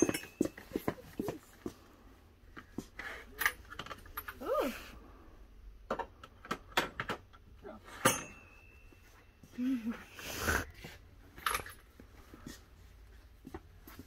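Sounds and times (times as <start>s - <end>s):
small hardware parts clinking: 11.3s - 11.9s.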